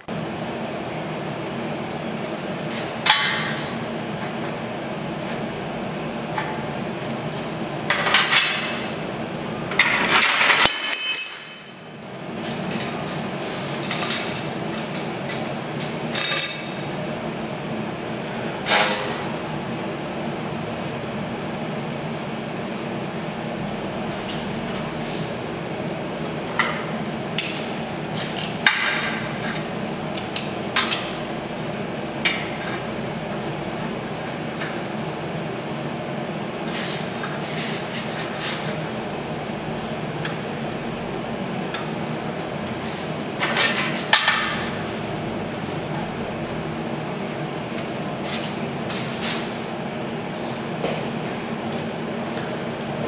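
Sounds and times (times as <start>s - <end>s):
steady hum: 0.0s - 53.0s
metal tubing and clamps clinking: 9.8s - 12.0s.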